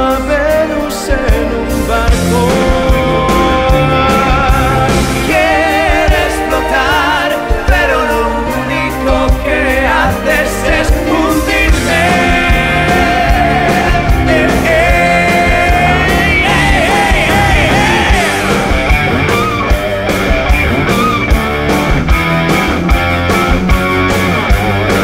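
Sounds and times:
men singing: 0:00.0 - 0:19.5
bass guitar: 0:00.0 - 0:25.0
drums: 0:00.0 - 0:25.0
rock song: 0:00.0 - 0:25.0.

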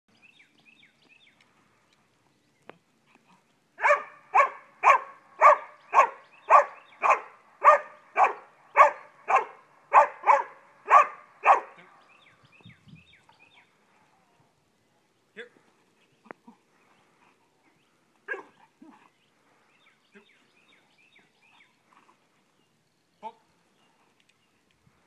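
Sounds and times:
dog barking: 0:03.8 - 0:11.8, 0:18.3 - 0:18.6.

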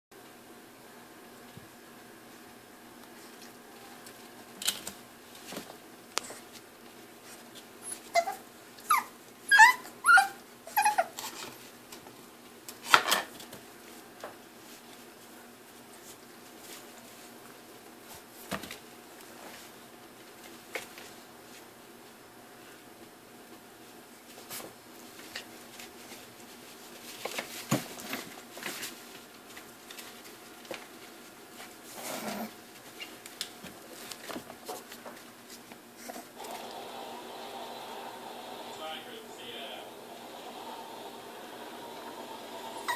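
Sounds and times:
puppy yipping and whimpering: 0:07.8 - 0:11.2.

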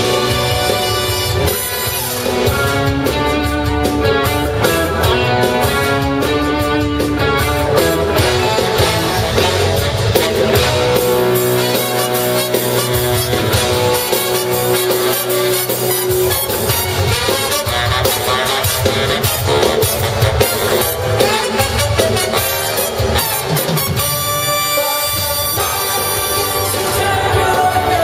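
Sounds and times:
drum kit: 0:00.0 - 0:28.0
electric guitar: 0:00.0 - 0:28.0
horn section: 0:00.0 - 0:28.0
live soul band playing: 0:00.0 - 0:28.0.

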